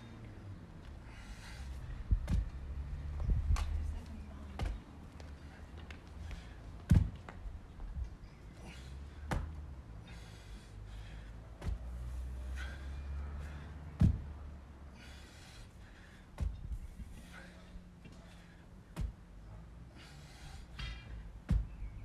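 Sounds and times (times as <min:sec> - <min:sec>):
steady low rumble: 0:00.0 - 0:22.0
dumbbell thudding on rubber mat: 0:02.2 - 0:02.5, 0:06.9 - 0:07.2, 0:14.0 - 0:14.3, 0:16.4 - 0:16.7, 0:18.9 - 0:19.2, 0:20.8 - 0:21.8.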